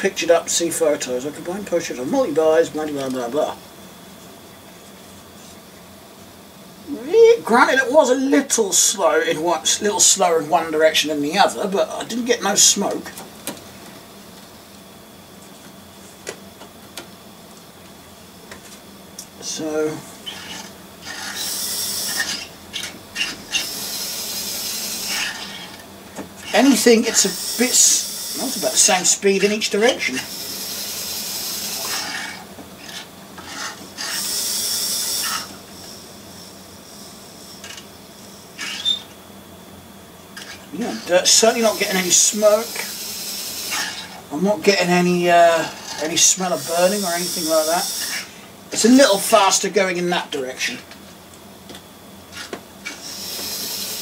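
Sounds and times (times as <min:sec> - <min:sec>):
small electric motor whirring: 0:20.2 - 0:39.1, 0:40.4 - 0:44.2, 0:44.8 - 0:48.3, 0:52.3 - 0:54.0.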